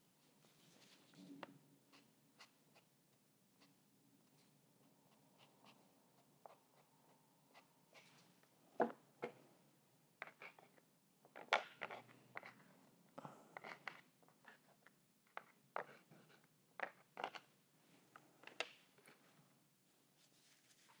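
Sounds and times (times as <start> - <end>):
drawing stick scratching on paper: 1.9 - 2.9, 5.1 - 6.9.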